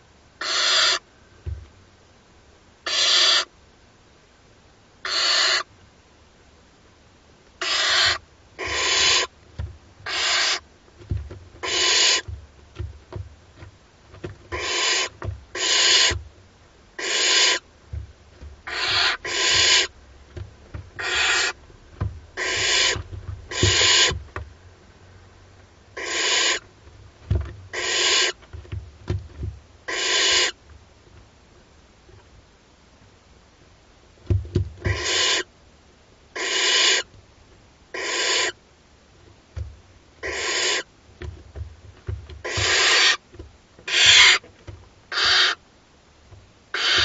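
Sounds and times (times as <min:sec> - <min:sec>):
owl chicks hissing begging calls: 0:00.4 - 0:01.1, 0:02.8 - 0:03.5, 0:05.0 - 0:05.7, 0:07.6 - 0:09.3, 0:10.0 - 0:10.6, 0:11.6 - 0:12.3, 0:14.5 - 0:16.2, 0:17.0 - 0:17.7, 0:18.6 - 0:19.9, 0:21.0 - 0:21.6, 0:22.4 - 0:24.2, 0:26.0 - 0:26.7, 0:27.7 - 0:28.4, 0:29.9 - 0:30.6, 0:34.9 - 0:35.5, 0:36.4 - 0:37.1, 0:37.9 - 0:38.6, 0:40.2 - 0:40.9, 0:42.4 - 0:43.2, 0:43.9 - 0:44.4, 0:45.1 - 0:45.6, 0:46.7 - 0:47.0
soft low knocks on nest floor: 0:01.4 - 0:01.7, 0:09.6 - 0:09.8, 0:11.0 - 0:14.6, 0:15.2 - 0:16.3, 0:17.9 - 0:21.0, 0:21.7 - 0:24.5, 0:27.2 - 0:27.7, 0:28.4 - 0:29.6, 0:34.2 - 0:35.0, 0:39.6 - 0:39.8, 0:41.2 - 0:43.5.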